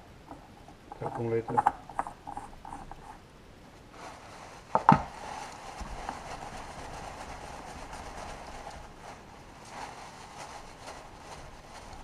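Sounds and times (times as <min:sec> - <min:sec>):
cloth rag rubbing: 0:03.9 - 0:12.0.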